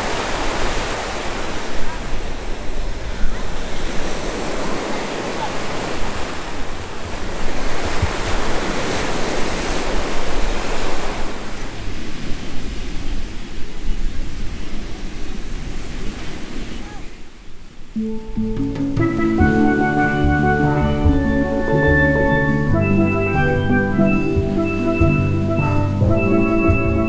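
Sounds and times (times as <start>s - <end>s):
ocean surf washing on beach: 0.0s - 27.0s
wind rumbling on microphone: 5.7s - 17.9s.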